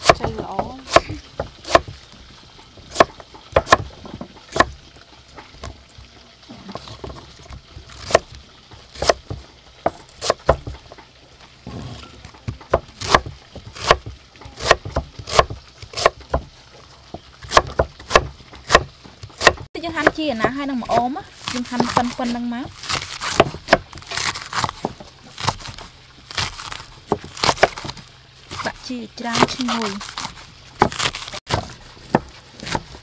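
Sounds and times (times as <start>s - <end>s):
knife chopping on wooden block: 2.9s - 4.7s, 9.0s - 10.8s, 12.7s - 16.5s, 17.4s - 22.2s.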